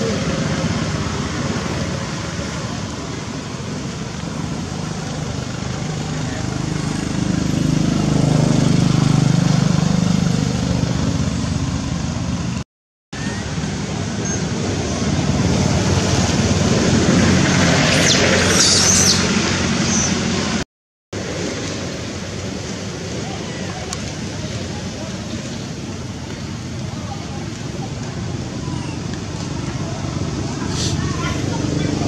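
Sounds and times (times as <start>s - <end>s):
engine drone: 0.0s - 12.6s, 13.2s - 20.6s, 21.2s - 32.0s
traffic noise: 0.0s - 20.6s, 21.2s - 32.0s
high chirps: 17.9s - 20.2s.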